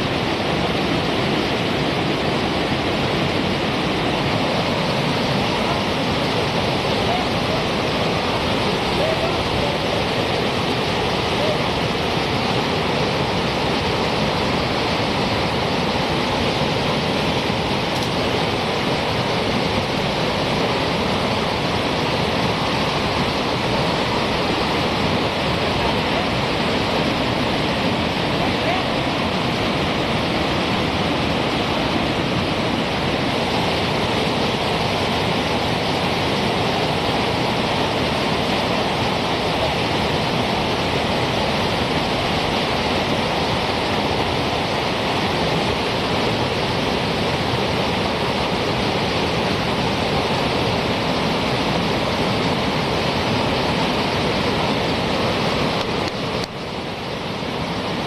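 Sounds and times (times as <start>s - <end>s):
whitewater rapids rushing: 0.0s - 58.0s.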